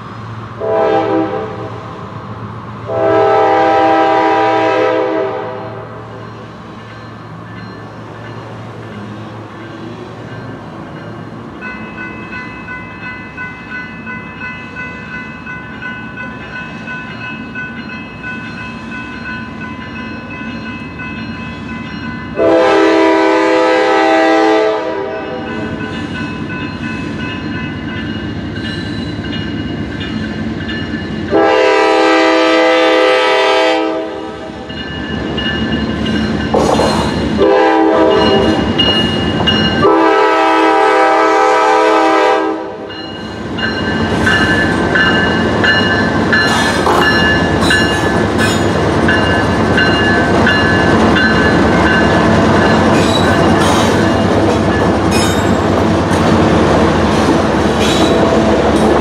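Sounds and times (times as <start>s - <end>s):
train rumble: 0.0s - 59.0s
train horn blasts: 0.6s - 1.8s, 2.8s - 6.0s, 22.4s - 25.8s, 31.3s - 34.6s, 37.4s - 38.7s, 39.8s - 42.9s
crossing warning bell ringing: 2.9s - 56.3s.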